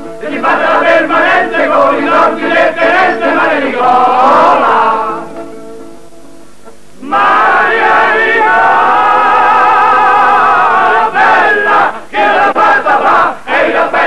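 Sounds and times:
men singing in chorus: 0.2s - 5.2s.

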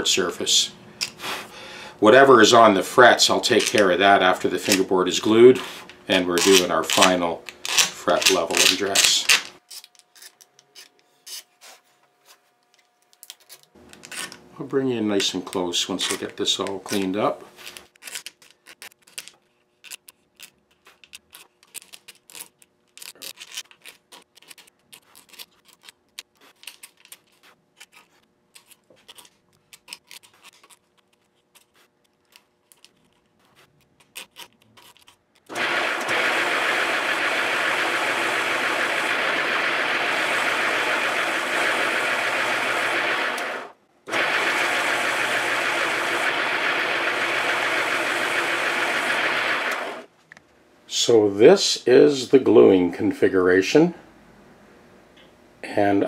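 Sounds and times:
razor blade scraping glue: 5.6s - 11.6s
disc sander running: 35.5s - 50.1s.

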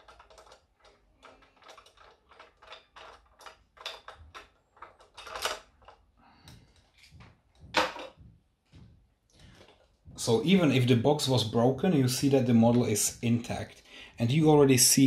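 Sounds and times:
small clicks taps and scrapes: 0.0s - 10.1s.

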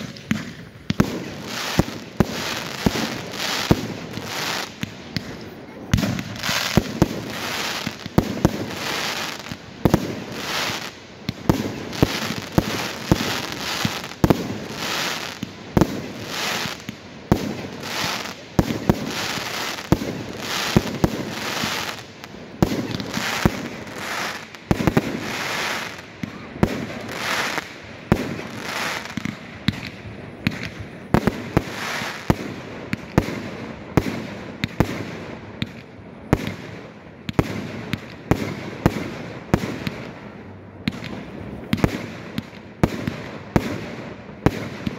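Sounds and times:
firework bangs: 0.0s - 44.9s.

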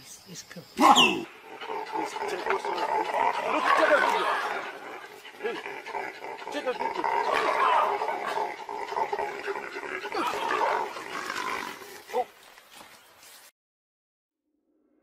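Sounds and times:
baboons calling: 0.8s - 12.4s
leopard growls: 1.0s - 12.3s.

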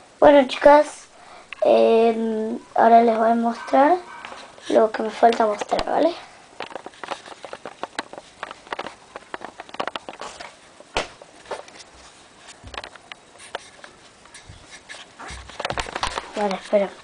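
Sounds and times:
camera handling clicks and rustles: 6.6s - 10.5s.

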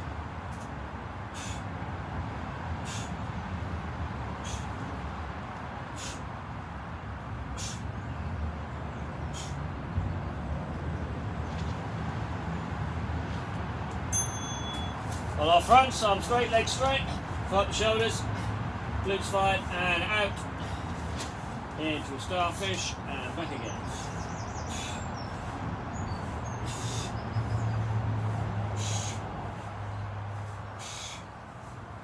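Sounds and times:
electronic timer beep: 14.2s - 15.0s.

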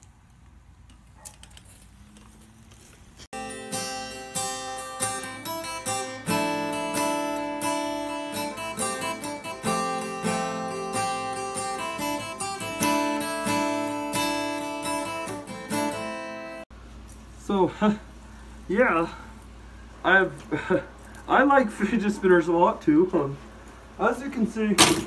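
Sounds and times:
acoustic guitar strummed: 3.4s - 16.6s.

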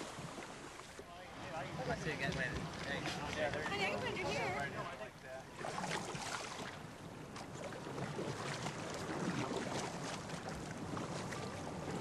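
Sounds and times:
paddles dipping and splashing: 0.0s - 4.7s, 5.4s - 12.0s
water washing against kayak hull: 5.4s - 12.0s.

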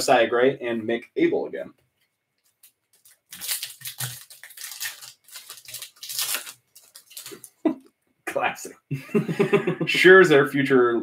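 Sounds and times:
plastic wrapper tearing and crinkling: 2.4s - 7.6s.

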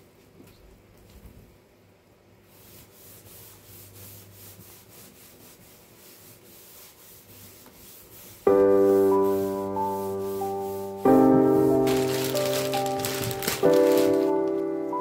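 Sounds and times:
sponge wiping wooden bench: 2.5s - 14.3s.

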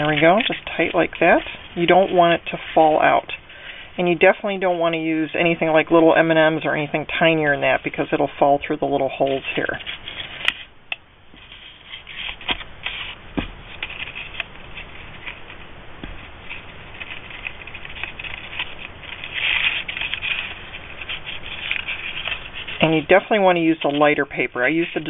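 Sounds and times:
paper wrapper rustling: 11.4s - 25.0s.

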